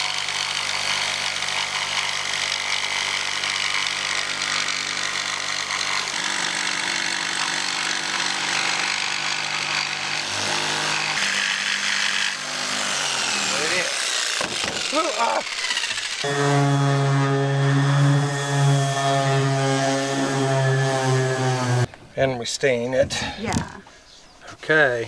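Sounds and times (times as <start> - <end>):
jigsaw cutting plywood: 0.0 - 21.9.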